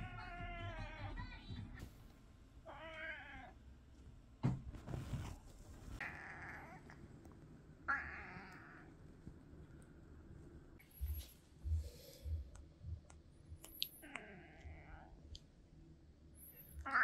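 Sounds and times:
cat meowing: 0:02.7 - 0:03.6, 0:06.0 - 0:07.0, 0:07.9 - 0:08.9, 0:16.8 - 0:17.0
thump: 0:04.4 - 0:05.1.

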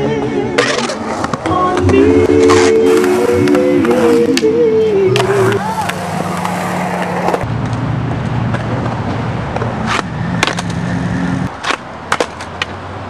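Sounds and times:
skateboard rolling on concrete: 0:00.0 - 0:13.0
skateboard clacks: 0:11.5 - 0:12.8.

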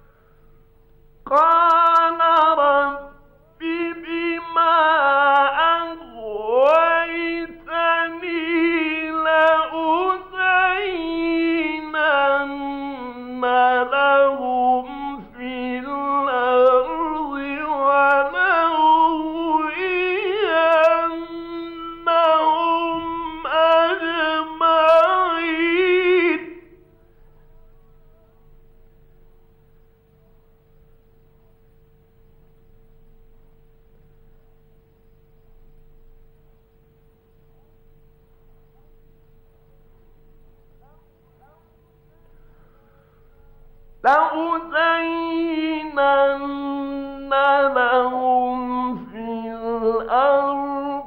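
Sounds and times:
steady hum: 0:00.0 - 0:51.0
man chanting recitation: 0:01.3 - 0:28.4, 0:44.0 - 0:51.0.

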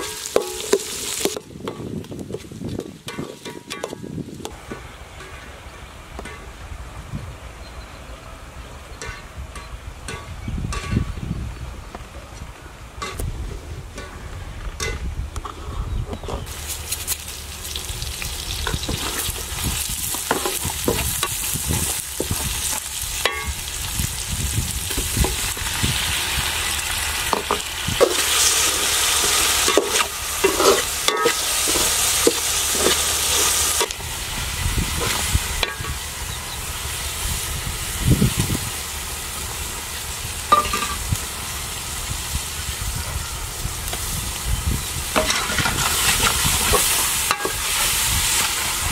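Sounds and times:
food sizzling in oil: 0:00.0 - 0:01.4, 0:16.5 - 0:48.9
spatula scraping metal pan: 0:27.4 - 0:34.0.

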